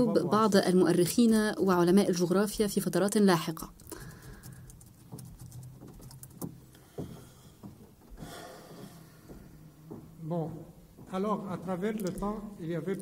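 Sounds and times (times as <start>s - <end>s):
faint knocks: 4.8s - 11.2s.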